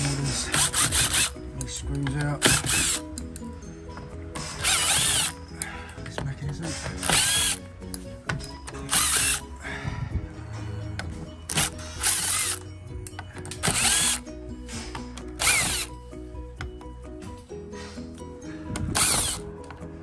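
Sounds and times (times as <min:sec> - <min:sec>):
power driver whining: 0:00.0 - 0:01.7, 0:02.3 - 0:06.1, 0:06.9 - 0:09.6, 0:11.0 - 0:16.8, 0:18.7 - 0:19.7
background music: 0:00.0 - 0:20.0.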